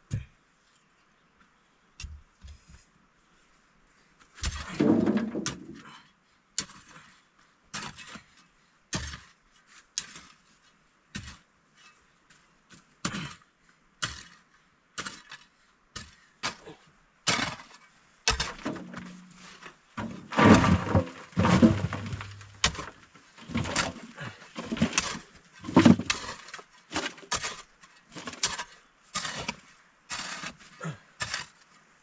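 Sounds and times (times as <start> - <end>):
short knocks and clatters: 4.4 - 5.8, 18.3 - 19.4, 20.0 - 24.0.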